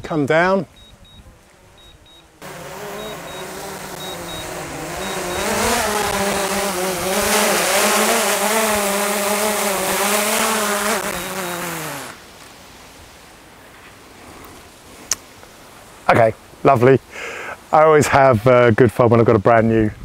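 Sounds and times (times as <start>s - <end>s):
faint short double beeps: 0.7s - 1.2s, 1.8s - 2.3s, 3.0s - 5.5s
drone propellers whining: 1.8s - 12.2s.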